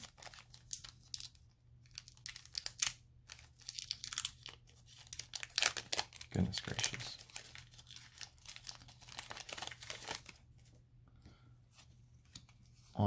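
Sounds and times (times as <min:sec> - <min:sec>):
foil wrapper crinkling and tearing: 0:00.0 - 0:10.4.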